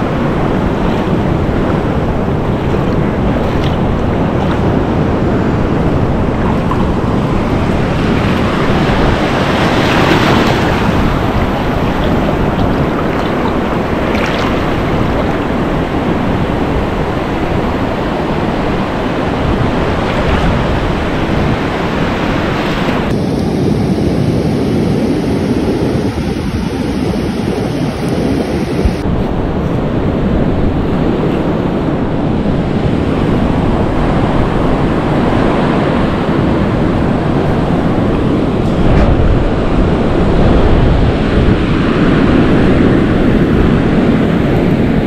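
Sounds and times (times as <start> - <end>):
small waves washing: 0.0 - 23.1
wind rumbling on microphone: 0.0 - 45.0.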